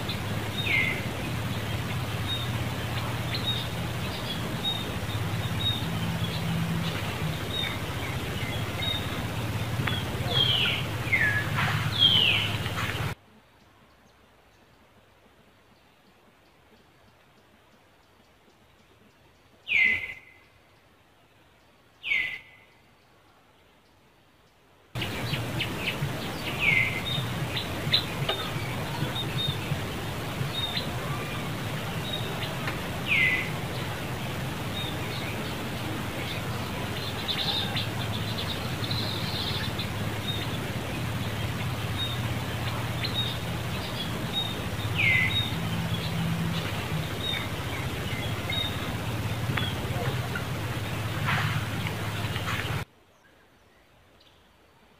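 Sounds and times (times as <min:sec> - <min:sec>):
low hum: 0:00.0 - 0:13.2, 0:25.0 - 0:52.8
bird whistled call: 0:09.9 - 0:12.9.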